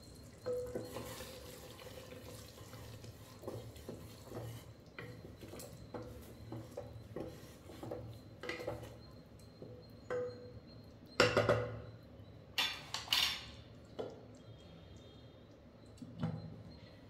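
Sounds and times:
utensils and dishes clinking: 0.0 - 1.9, 12.6 - 13.7.

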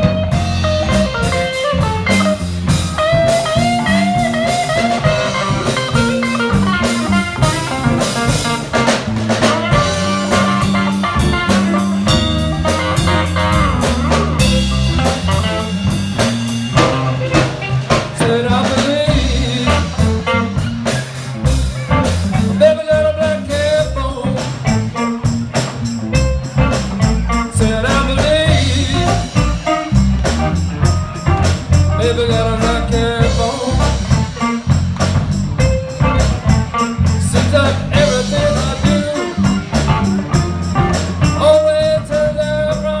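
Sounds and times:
blues harmonica wailing: 0.0 - 18.0
live blues band playing: 0.0 - 43.0.

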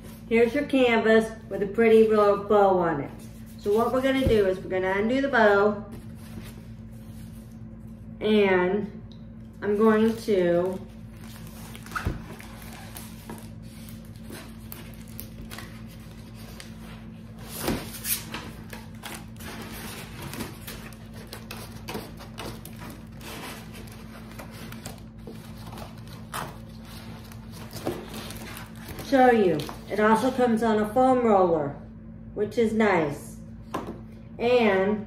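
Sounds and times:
steady low hum: 0.0 - 35.0
plastic film rustling and crinkling: 10.0 - 29.9.

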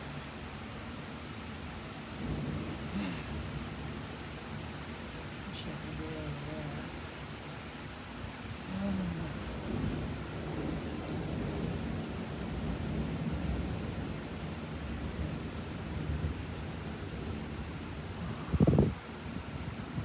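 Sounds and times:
rain hiss: 0.0 - 20.0
thunder rumbling: 2.2 - 4.2, 9.0 - 19.0.

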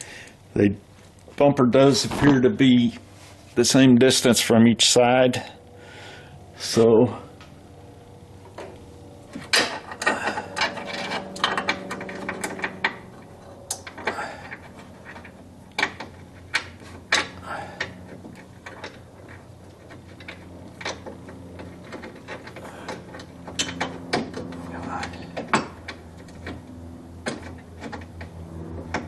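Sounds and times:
metal bolts clinking and rattling: 8.5 - 29.0.

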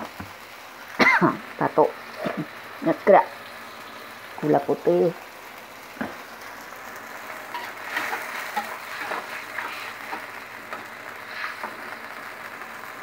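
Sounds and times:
sauce simmering and sizzling: 0.0 - 13.0
metal spatula scraping a wok: 7.3 - 12.0.

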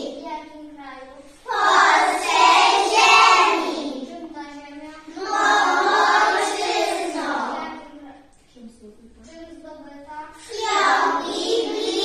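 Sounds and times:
children singing in chorus: 1.5 - 4.0, 5.2 - 7.6, 10.5 - 12.0.

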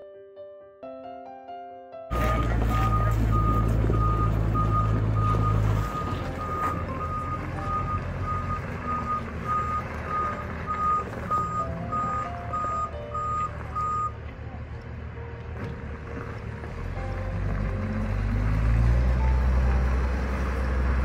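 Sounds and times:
reversing alarm beeping: 2.1 - 14.2
deep engine rumble: 2.1 - 21.0.

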